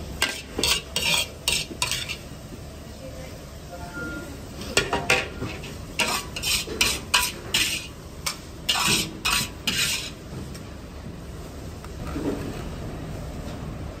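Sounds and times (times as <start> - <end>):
metal ladle scraping a wok: 0.2 - 2.3, 5.4 - 10.2.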